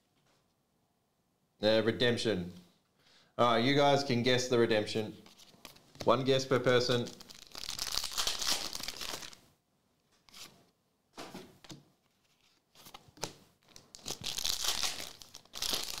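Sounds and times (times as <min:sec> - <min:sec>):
cards rustling: 0:05.2 - 0:09.4, 0:10.2 - 0:10.6, 0:11.6 - 0:16.0
foil wrapper tearing and crinkling: 0:07.1 - 0:09.4, 0:13.7 - 0:16.0.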